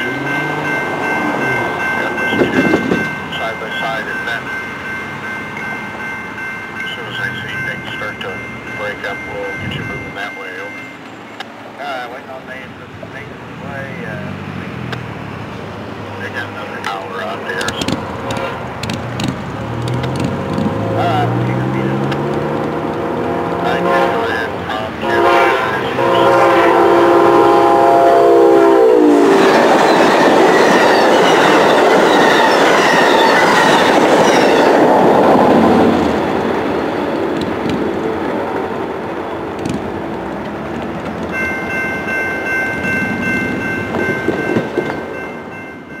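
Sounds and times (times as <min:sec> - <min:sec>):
steady high ringing tones: 0:00.0 - 0:11.4
train wheels clattering on rails: 0:16.8 - 0:23.1, 0:29.2 - 0:41.7, 0:42.4 - 0:46.0
locomotive horn: 0:18.3 - 0:18.7, 0:23.0 - 0:34.8.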